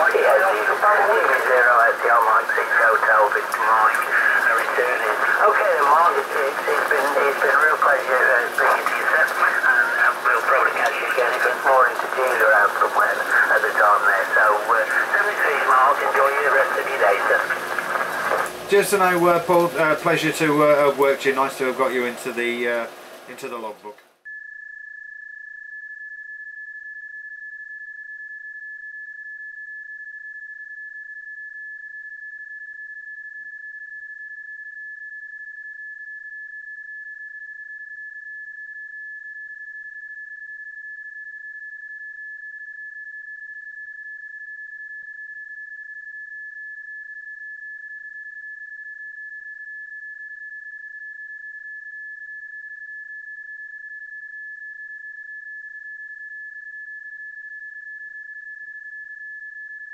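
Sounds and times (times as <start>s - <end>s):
steady single tone: 24.3s - 59.9s.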